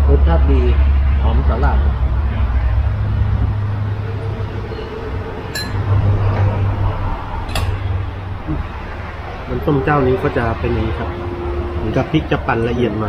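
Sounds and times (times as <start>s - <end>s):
low steady rumble: 0.0s - 13.0s
spoon clinking tableware: 5.5s - 5.8s.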